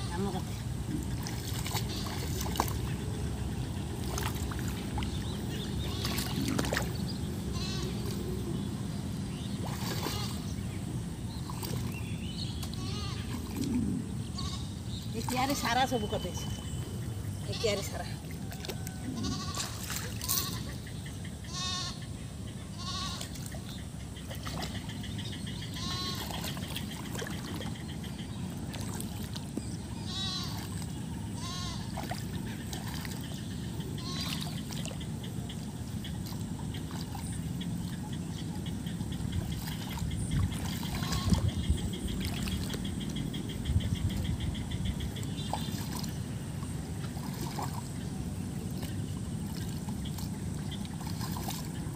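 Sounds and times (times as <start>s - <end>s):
livestock bleating: 7.6s - 8.0s, 12.8s - 13.3s, 14.4s - 14.7s, 19.2s - 20.7s, 21.5s - 22.0s, 22.8s - 23.3s, 25.7s - 26.2s, 30.1s - 30.6s, 31.4s - 31.8s, 34.0s - 34.4s.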